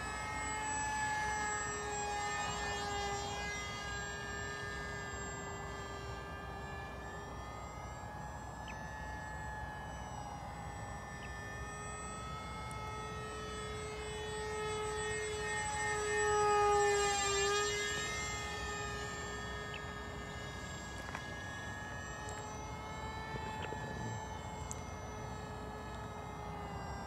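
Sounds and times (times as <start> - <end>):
model plane motor whine: 0.0 - 27.0.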